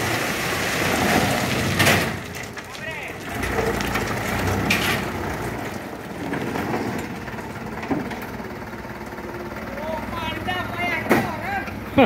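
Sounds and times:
gravel sliding off truck bed: 0.0 - 8.4
truck engine running: 0.0 - 12.0.

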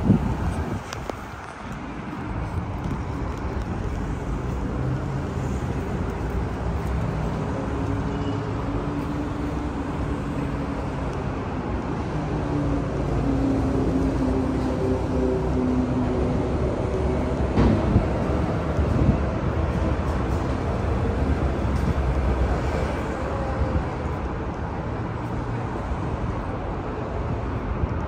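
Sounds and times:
passing cars rumbling: 0.0 - 28.0.

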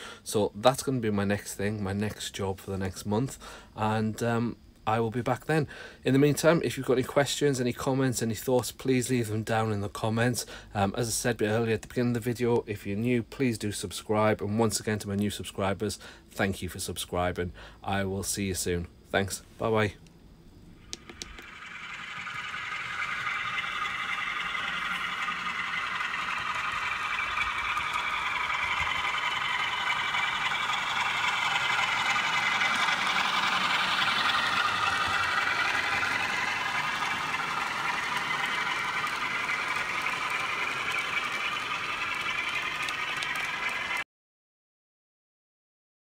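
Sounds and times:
model train motor whining: 20.6 - 44.0
wheels rattling on rails: 20.9 - 44.0.

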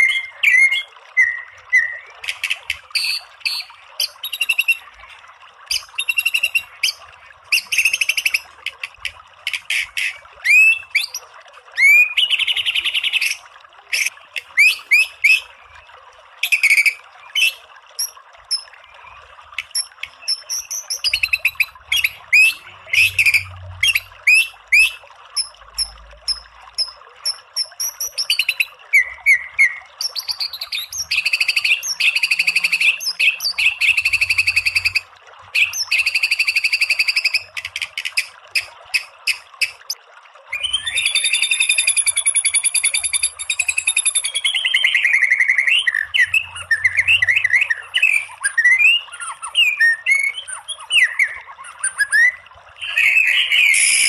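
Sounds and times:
songbird singing: 0.0 - 4.8, 40.5 - 54.0.

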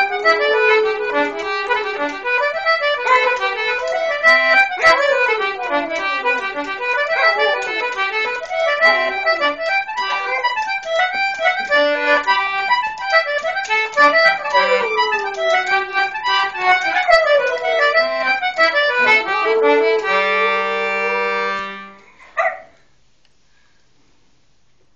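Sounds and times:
concertina playing a reel: 0.0 - 22.6
dog howling: 4.6 - 5.6, 7.0 - 7.8, 10.0 - 10.6, 14.4 - 15.9, 16.7 - 18.2.

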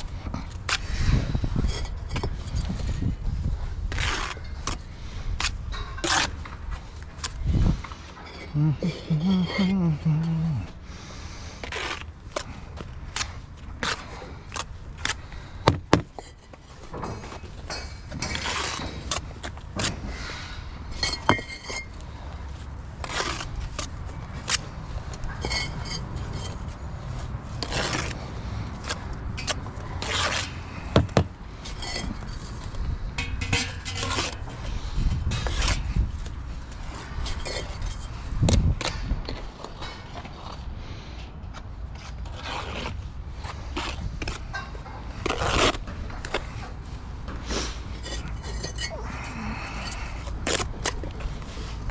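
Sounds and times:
trowel scraping mortar: 3.9 - 4.8, 5.4 - 6.4, 8.2 - 10.7, 11.6 - 15.2, 18.2 - 20.0, 23.0 - 24.6, 25.2 - 26.8, 27.5 - 32.7, 33.4 - 36.0, 42.0 - 44.4, 47.5 - 51.9
bricks knocking and clinking: 21.0 - 21.9, 30.9 - 32.3.

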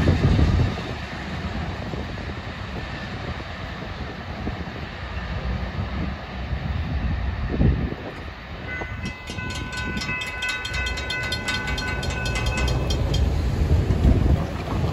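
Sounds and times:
railroad crossing bell ringing: 8.1 - 14.1.

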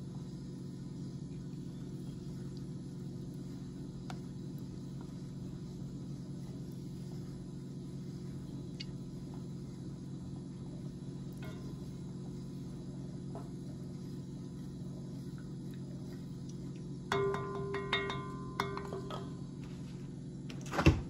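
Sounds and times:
low hum: 0.0 - 20.6
ringing tone: 17.1 - 19.5.

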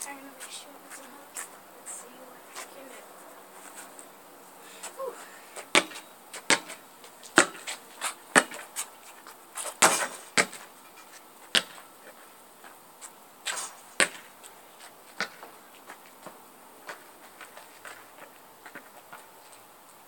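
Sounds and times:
basketball bouncing on pavement: 5.6 - 10.8, 11.4 - 12.8, 13.4 - 19.4.

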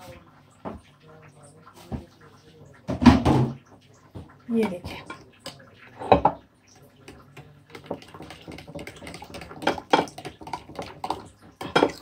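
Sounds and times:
utensil knock: 7.7 - 12.0.

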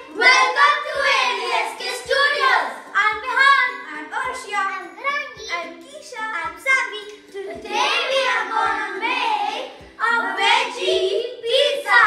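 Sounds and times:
children singing in chorus: 0.0 - 3.8, 7.3 - 12.0
low beat: 0.0 - 4.5, 5.4 - 11.6.

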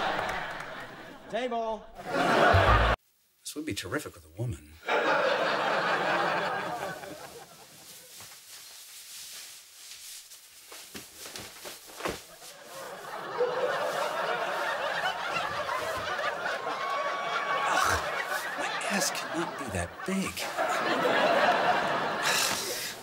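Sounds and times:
studio audience laughing: 0.0 - 1.3, 2.0 - 3.0, 4.8 - 7.9, 12.6 - 23.0.

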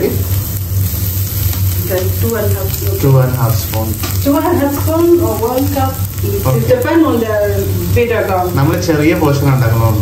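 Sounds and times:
coconut sizzling in a pan: 0.0 - 10.0.

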